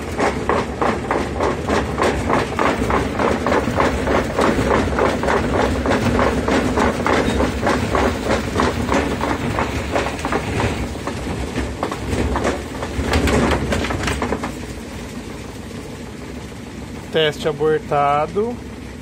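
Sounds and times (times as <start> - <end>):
washing machine tub knocking: 0.0 - 14.6.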